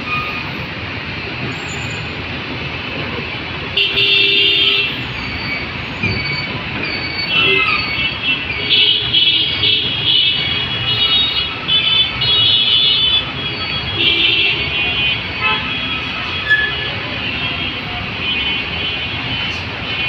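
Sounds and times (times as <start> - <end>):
truck and bus engines: 0.0 - 20.0
vehicle horns honking: 3.8 - 5.0, 7.2 - 20.0.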